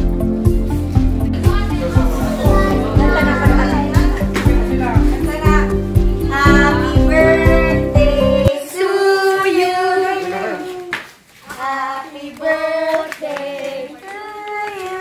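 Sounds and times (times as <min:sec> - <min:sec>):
group singing together: 0:01.7 - 0:05.4, 0:06.2 - 0:14.2.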